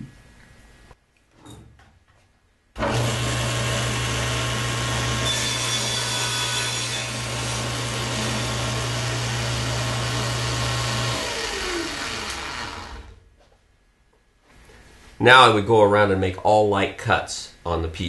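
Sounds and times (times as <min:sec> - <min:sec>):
saw blade spinning down: 0:02.8 - 0:06.2, 0:07.0 - 0:13.2
saw blade cutting wood: 0:02.8 - 0:13.2
table saw motor hum: 0:02.8 - 0:13.2.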